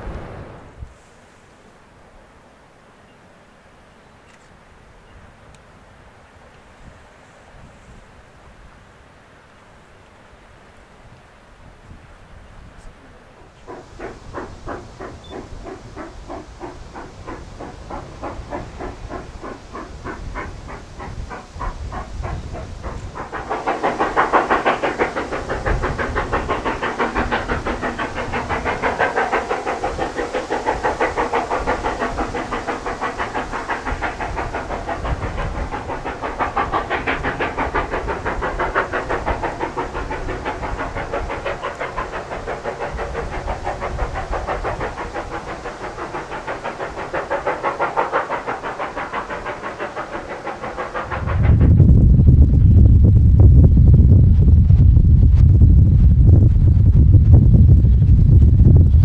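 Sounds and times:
steam locomotive chuffing: 12.8 - 59.0.

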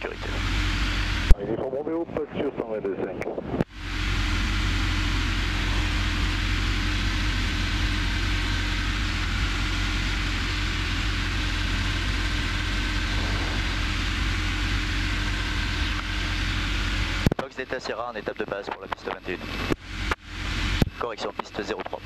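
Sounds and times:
light aircraft engine drone: 0.0 - 22.0
airflow noise: 3.4 - 18.6.

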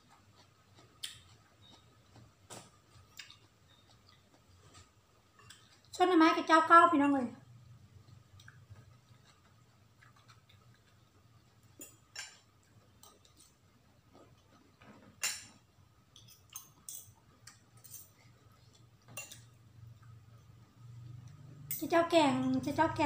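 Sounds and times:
faint low hum: 0.0 - 23.0
cutlery clinking on plate: 11.8 - 13.5, 14.8 - 15.6, 16.2 - 18.2, 19.1 - 19.6.

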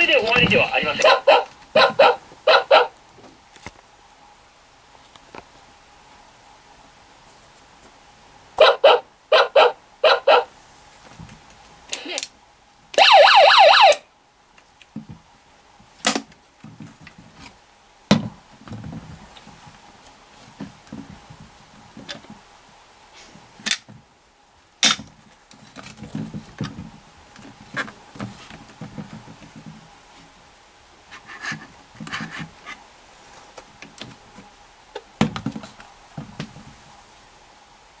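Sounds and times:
toy electronic siren wailing: 13.0 - 14.0
plastic toy being handled: 31.1 - 34.5.

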